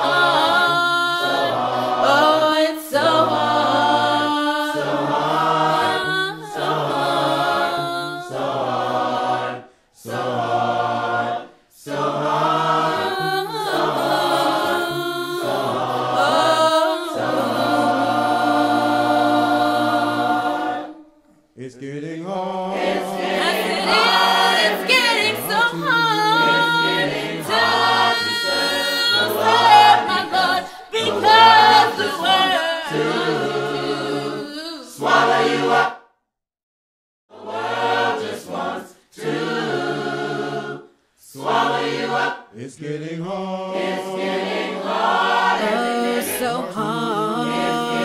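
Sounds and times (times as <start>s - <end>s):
choir singing a cappella: 0.0s - 36.1s, 37.3s - 48.0s
singers breathing: 9.6s - 10.0s, 30.6s - 30.9s.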